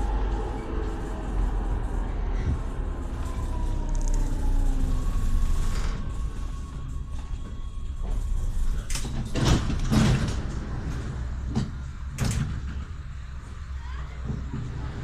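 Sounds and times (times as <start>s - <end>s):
low hum of standing tram: 0.0s - 15.0s
tram doors knocking and hissing: 4.7s - 15.0s.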